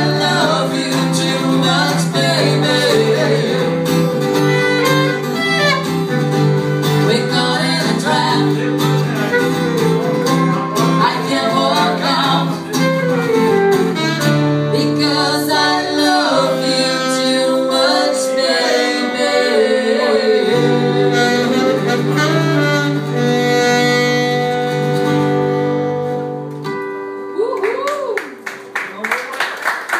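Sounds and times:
man singing: 0.0 - 3.8, 7.0 - 9.4, 10.8 - 12.9
woman singing: 0.0 - 3.8, 7.0 - 8.7, 11.0 - 12.7, 14.7 - 21.9
saxophone: 0.0 - 26.6
acoustic guitar: 0.0 - 29.0.

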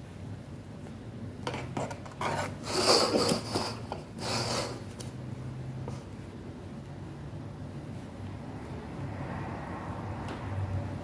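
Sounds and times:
metal spoon scraping cake pan: 1.5 - 4.8.

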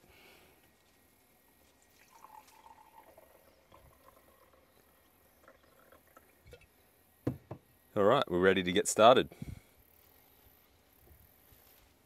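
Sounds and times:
wine pouring into tumbler: 1.6 - 6.8.

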